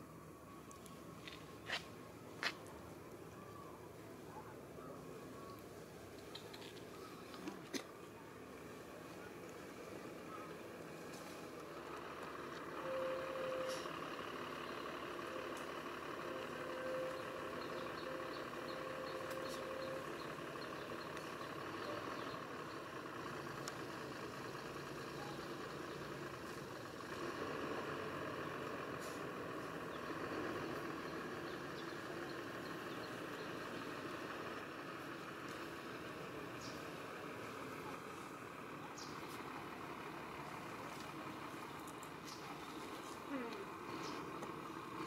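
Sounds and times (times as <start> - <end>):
outdoor background hum: 0.0 - 45.0
faint clicks: 40.9 - 42.5.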